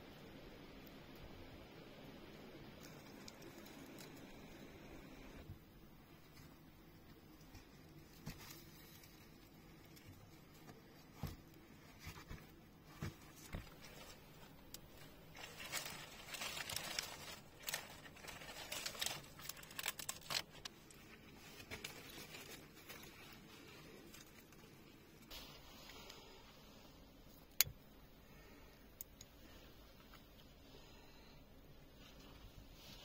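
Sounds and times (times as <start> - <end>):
crinkling rustle: 2.6 - 33.0.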